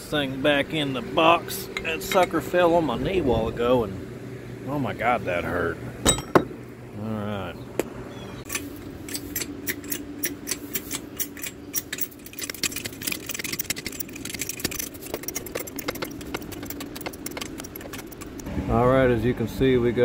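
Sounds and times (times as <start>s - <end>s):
low steady hum: 0.0s - 20.0s
metallic clicks of jack pumping: 8.5s - 18.5s.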